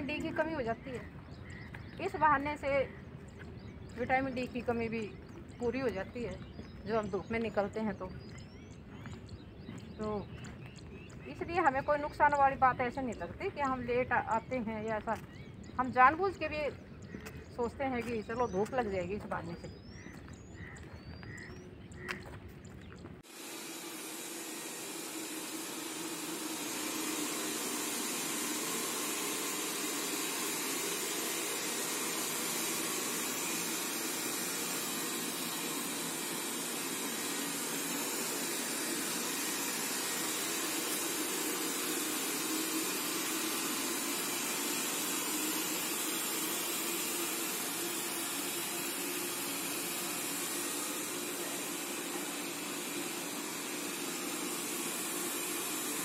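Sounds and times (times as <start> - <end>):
robot vacuum cleaner whirring: 23.2 - 56.0.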